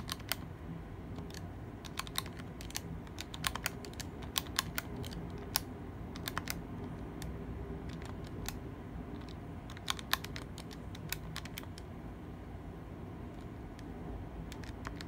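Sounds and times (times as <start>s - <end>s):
low background noise: 0.0s - 15.0s.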